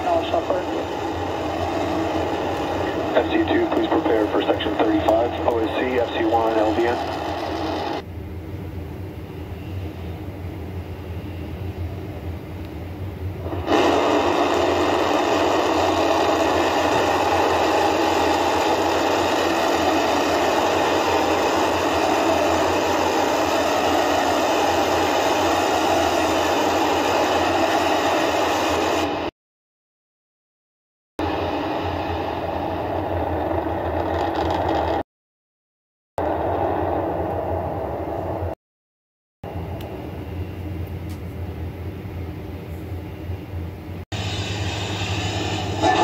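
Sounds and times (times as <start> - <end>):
rocket engines roaring: 0.0 - 29.3, 31.2 - 35.0, 36.2 - 38.6, 44.2 - 46.0
rocket engines rumbling: 0.0 - 29.3, 31.2 - 35.0, 36.2 - 38.6, 39.5 - 46.0.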